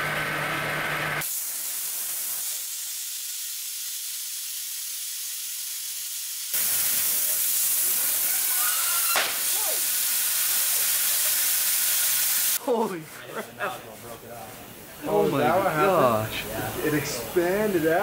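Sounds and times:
waterjet hissing: 0:01.2 - 0:13.0, 0:14.2 - 0:18.0
sharp crack: 0:06.6 - 0:10.0.

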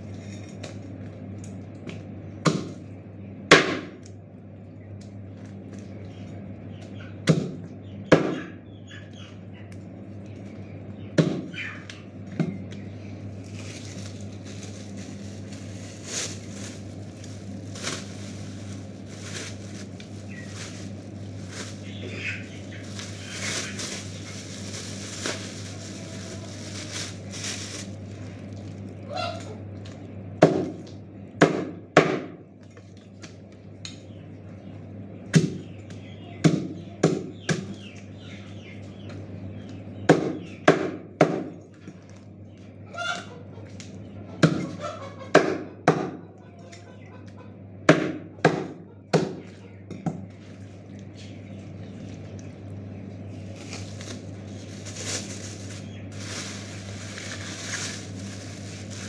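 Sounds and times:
plastic bag rustling: 0:13.3 - 0:29.1, 0:53.3 - 0:59.0.

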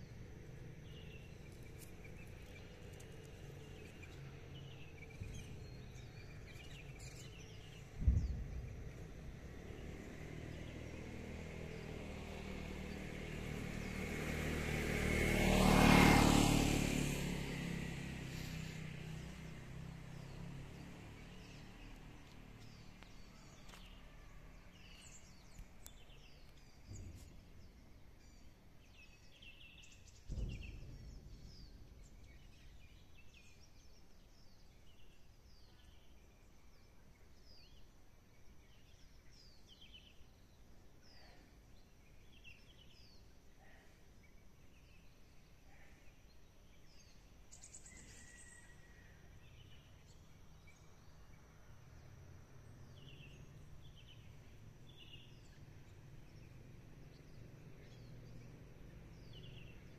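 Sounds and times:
small birds chirping: 0:00.0 - 0:14.7, 0:15.5 - 0:59.9
road vehicle passing by: 0:00.0 - 0:35.1, 0:41.8 - 0:59.9
brief low thumps: 0:08.0 - 0:09.1.

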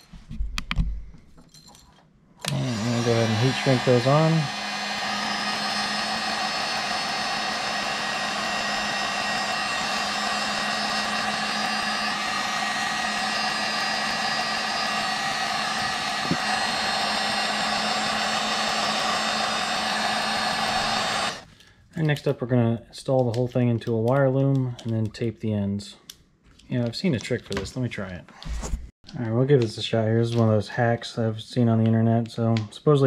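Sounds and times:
heat gun blowing air: 0:02.4 - 0:21.5.

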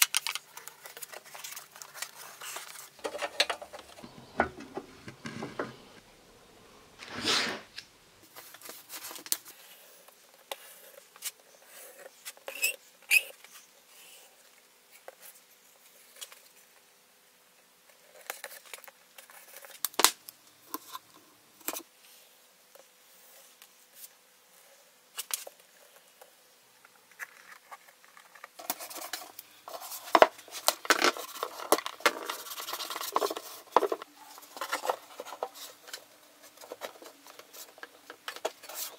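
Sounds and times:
tape tearing: 0:07.0 - 0:07.9.

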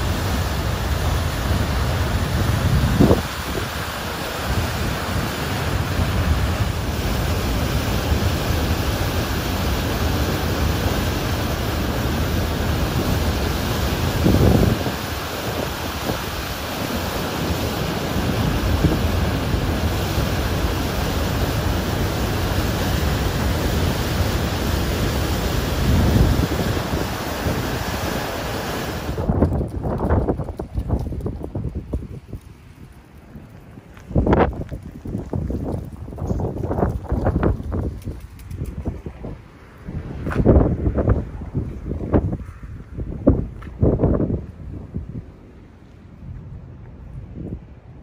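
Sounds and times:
water rushing over spillway: 0:00.0 - 0:31.6
wind buffeting microphone: 0:00.0 - 0:48.0.

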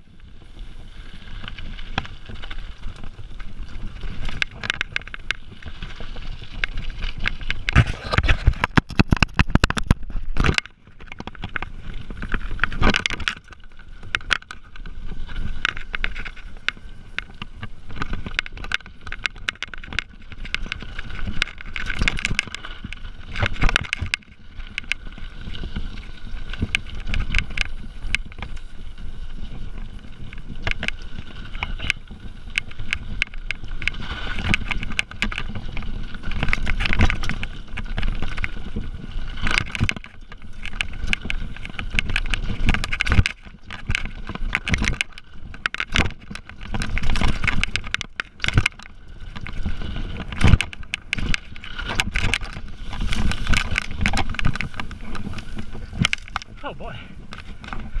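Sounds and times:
bike rattling and clicking: 0:00.0 - 0:58.0
bike tyres crunching over dirt: 0:00.0 - 0:58.0.

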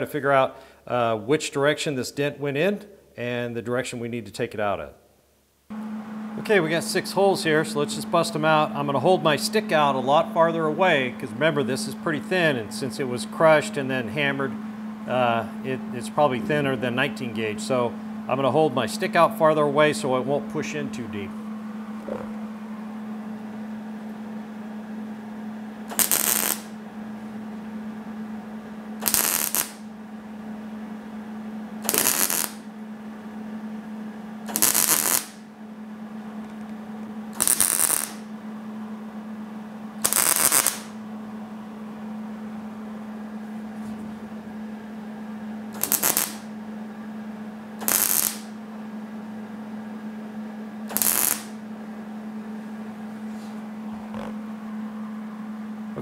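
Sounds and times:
steady low hum: 0:00.0 - 0:56.0
welding bursts: 0:25.9 - 0:26.8, 0:29.0 - 0:29.9, 0:31.8 - 0:32.7, 0:34.5 - 0:35.4, 0:37.3 - 0:38.3, 0:40.0 - 0:41.0, 0:45.7 - 0:46.6, 0:47.8 - 0:48.6, 0:50.9 - 0:51.6.

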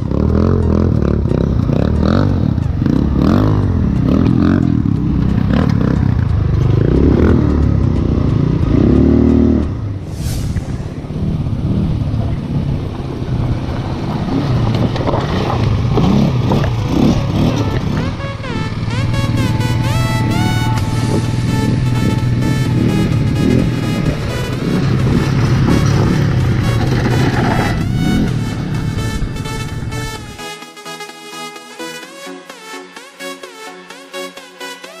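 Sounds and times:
quad bike engine revving: 0:00.0 - 0:10.0, 0:10.9 - 0:30.3
clatter and scraping: 0:13.7 - 0:18.1, 0:24.4 - 0:28.1.

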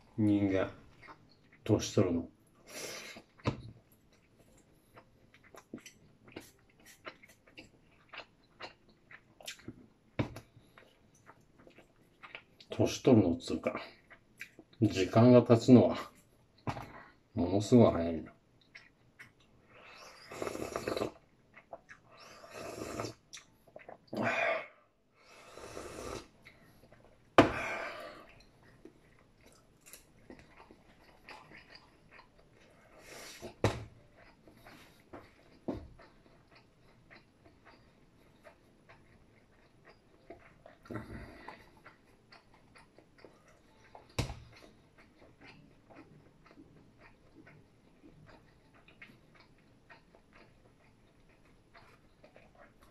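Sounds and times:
faint chewing: 0:00.0 - 0:52.9
person slurping soup: 0:19.7 - 0:21.2, 0:22.1 - 0:23.2, 0:25.2 - 0:26.4.

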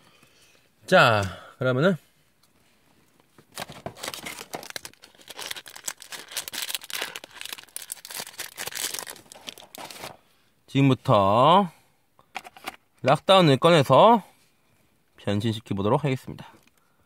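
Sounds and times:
packaging crinkling: 0:03.5 - 0:10.2.

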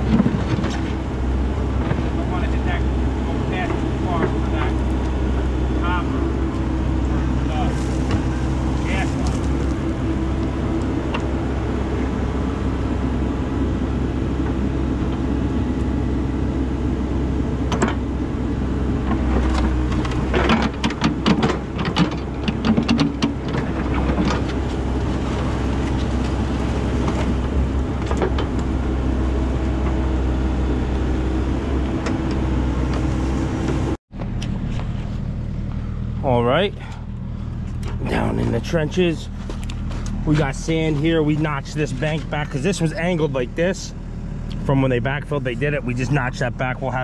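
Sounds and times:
excavator diesel engine running: 0:00.0 - 0:47.0
dirt and stones scraping bucket: 0:07.4 - 0:09.9.

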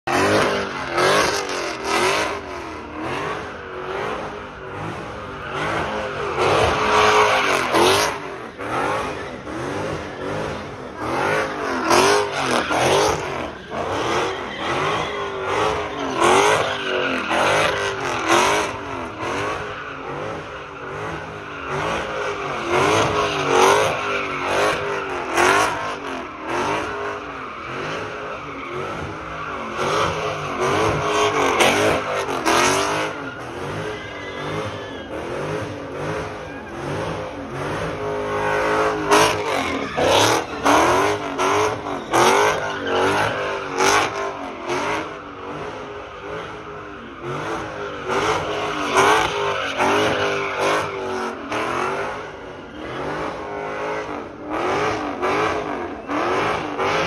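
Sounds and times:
car engine revving hard: 0:00.0 - 0:57.0
tires spinning on asphalt: 0:00.0 - 0:57.0.

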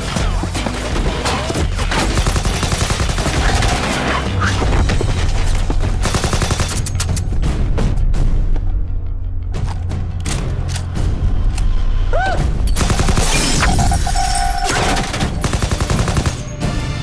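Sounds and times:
rapid automatic gunfire: 0:01.9 - 0:04.1, 0:06.0 - 0:06.8, 0:12.8 - 0:13.5, 0:14.9 - 0:16.6.

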